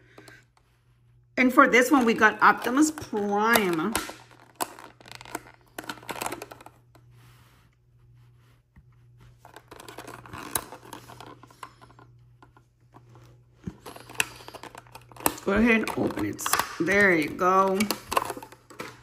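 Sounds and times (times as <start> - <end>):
packaging clicks and scrapes: 1.9 - 7.0, 9.4 - 19.0
packaging rustling: 3.6 - 6.8, 9.4 - 19.0.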